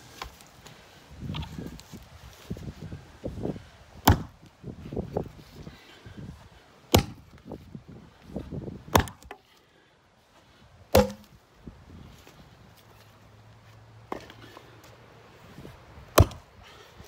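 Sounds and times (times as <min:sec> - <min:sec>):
footsteps shuffling on grass: 0:00.0 - 0:03.8, 0:04.4 - 0:06.8, 0:11.6 - 0:16.1
axe chopping into wooden beam: 0:04.0 - 0:04.4, 0:06.9 - 0:07.4, 0:08.9 - 0:09.4, 0:10.9 - 0:11.4, 0:16.1 - 0:16.5.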